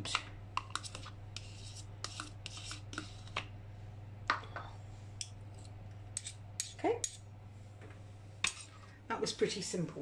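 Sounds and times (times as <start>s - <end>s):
steady low hum: 0.0s - 10.0s
metal spoon scraping plastic tub: 0.6s - 3.4s.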